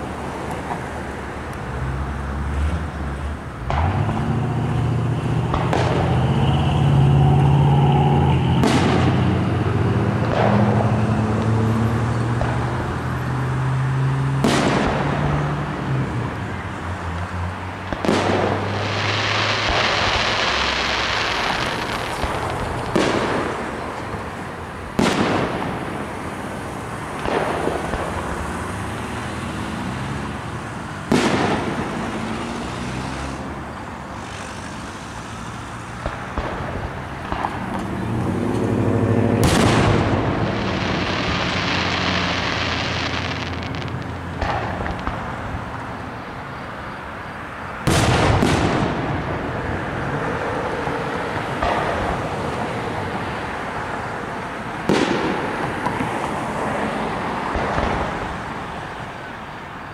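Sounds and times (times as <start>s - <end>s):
firework shells booming: 3.6s - 11.4s, 14.4s - 15.4s, 17.9s - 28.4s, 31.0s - 32.2s, 36.0s - 45.4s, 47.8s - 49.5s, 51.4s - 52.5s, 54.8s - 56.1s
firework hissing: 18.0s - 24.0s, 34.1s - 36.8s, 39.4s - 44.7s.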